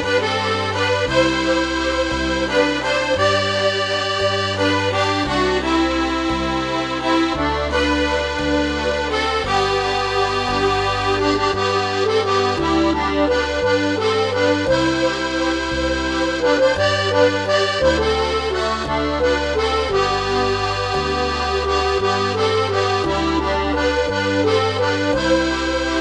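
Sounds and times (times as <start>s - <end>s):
accordion music: 0.0s - 26.0s.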